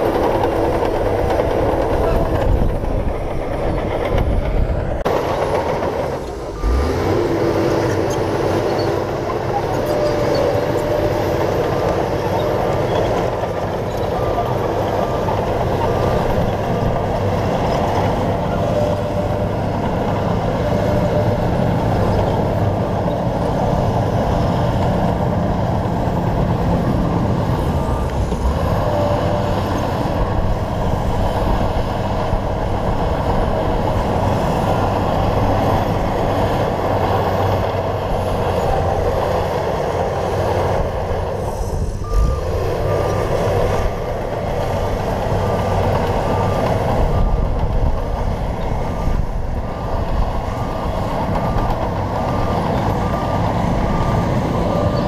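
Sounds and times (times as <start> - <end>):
bulldozer diesel engine: 0.0 - 55.0
reversing alarm beeping: 41.6 - 47.4, 48.9 - 55.0.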